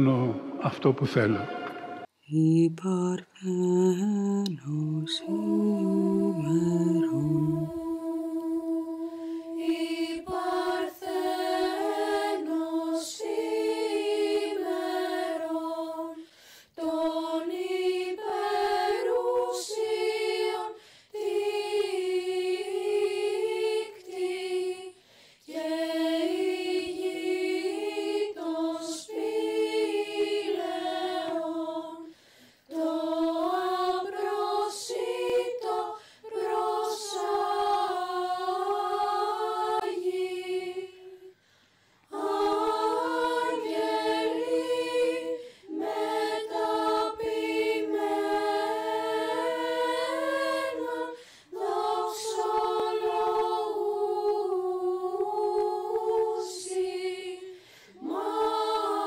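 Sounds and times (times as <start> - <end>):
person singing unaccompanied chant: 2.3 - 16.2, 16.8 - 24.9, 42.1 - 59.0.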